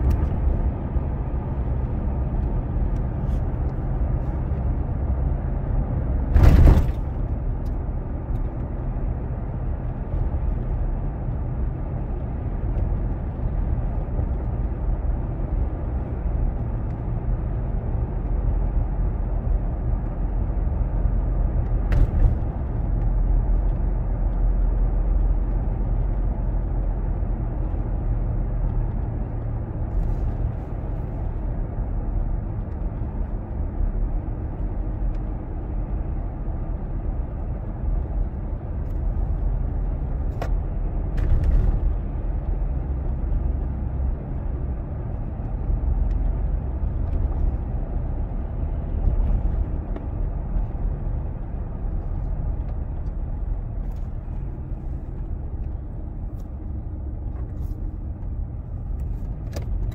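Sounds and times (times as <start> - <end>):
car road and engine noise: 0.0 - 59.9.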